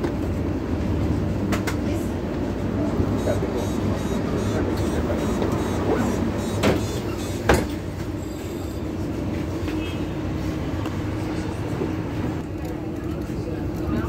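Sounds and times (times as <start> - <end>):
bus engine and road hum: 0.0 - 14.0.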